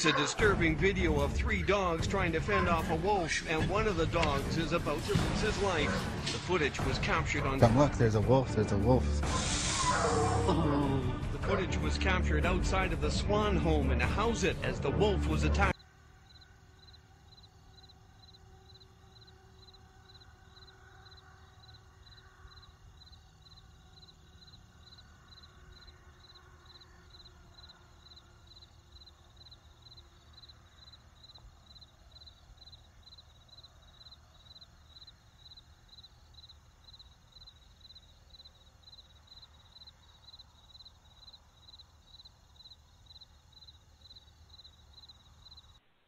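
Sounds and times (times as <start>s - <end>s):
cricket chirping: 15.7s - 45.8s.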